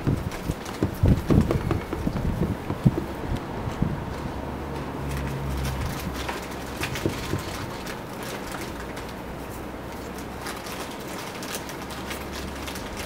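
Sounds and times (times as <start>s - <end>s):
light knocks: 0.0s - 3.2s
low steady rumble: 0.0s - 10.4s.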